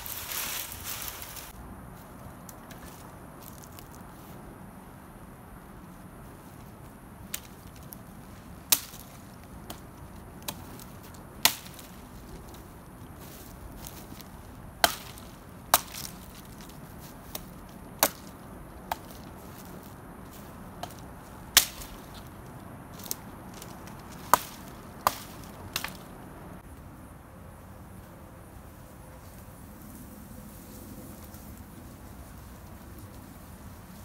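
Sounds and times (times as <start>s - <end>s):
hatchet chopping branch: 8.7s - 12.0s, 14.8s - 19.9s, 20.8s - 22.3s, 22.9s - 26.1s.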